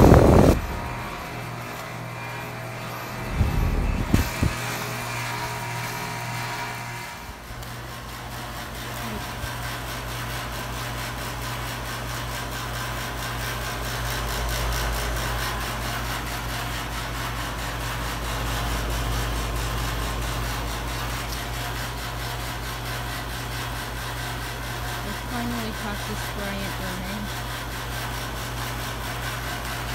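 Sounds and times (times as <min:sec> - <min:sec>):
heat pump humming and rushing: 0:00.0 - 0:29.9.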